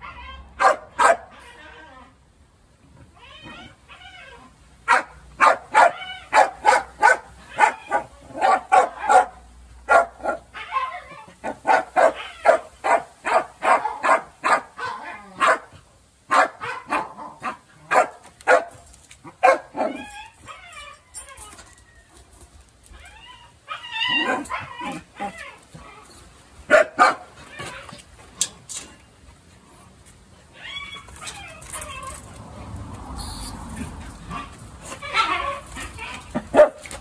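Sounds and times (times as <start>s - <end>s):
dog barking: 0.6s - 1.3s, 4.9s - 10.5s, 11.4s - 15.7s, 16.3s - 18.8s, 19.4s - 20.0s, 26.7s - 27.3s, 36.5s - 36.9s.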